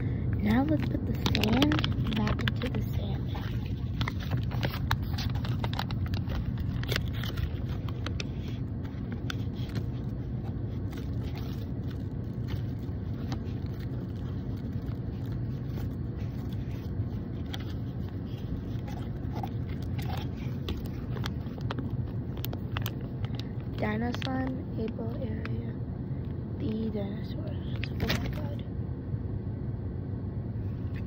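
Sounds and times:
car engine rumble inside cabin: 0.0s - 29.3s
plastic packet clicks and crinkles: 0.4s - 25.0s.

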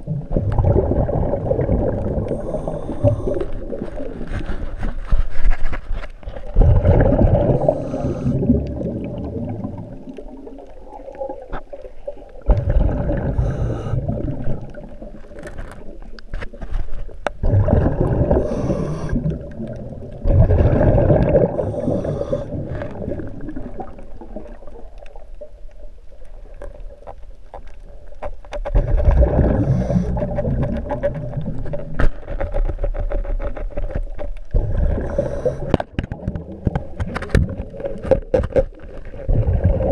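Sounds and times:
water rumbling and gurgling underwater: 0.0s - 39.9s
sharp clicks and scrapes: 2.6s - 6.6s, 15.2s - 17.4s, 27.1s - 39.3s.

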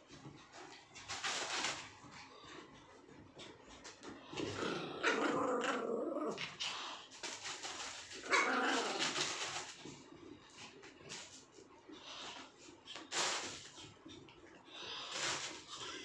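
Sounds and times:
puppies growling and barking: 4.2s - 10.1s.

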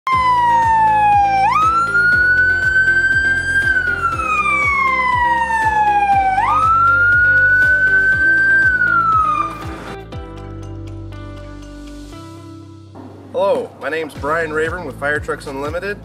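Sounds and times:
electronic siren wailing: 0.1s - 10.0s
music with steady beat: 0.1s - 16.0s.

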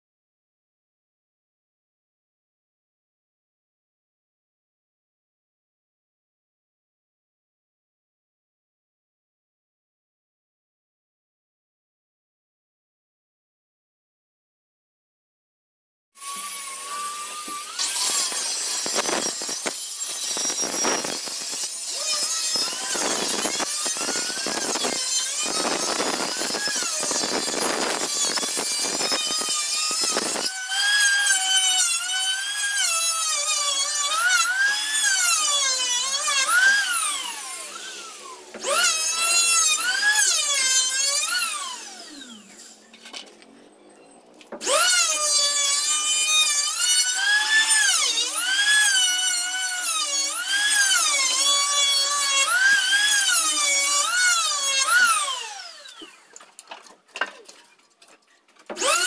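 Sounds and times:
electric drill whining: 16.2s - 43.3s, 44.5s - 56.4s, 58.7s - 59.0s
rough cutting noise on wood: 16.2s - 43.5s, 44.4s - 59.0s.

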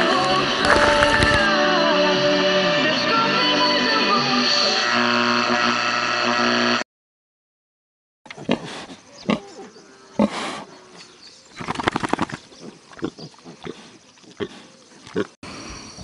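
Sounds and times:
pigs grunting: 0.6s - 1.5s, 8.3s - 15.4s.

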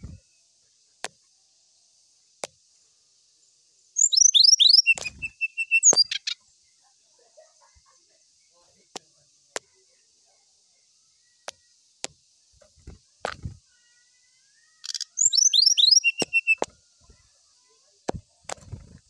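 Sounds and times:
bird chirps and trill: 4.0s - 6.4s, 13.4s - 17.3s
bird hopping ticks and knocks: 11.5s - 13.6s, 18.1s - 19.0s.

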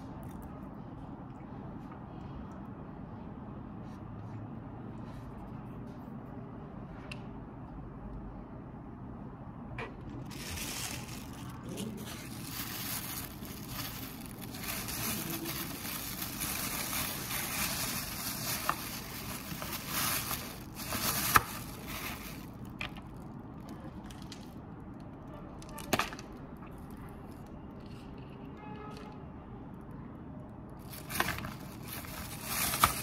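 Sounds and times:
rustling handling noise: 10.0s - 24.5s, 30.8s - 33.0s.

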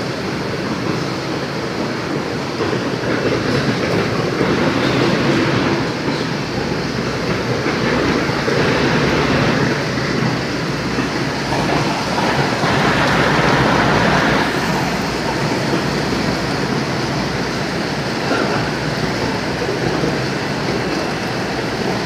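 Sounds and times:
machinery running: 2.6s - 22.0s.

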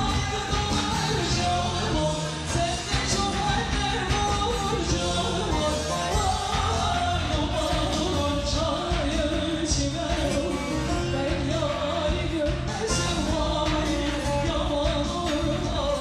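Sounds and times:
drums: 0.0s - 16.0s
woman singing into a microphone: 0.0s - 16.0s.

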